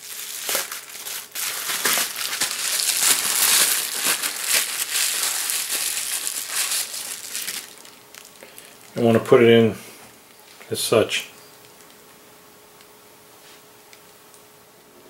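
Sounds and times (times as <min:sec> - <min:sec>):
bubble wrap crinkling: 0:00.0 - 0:09.3.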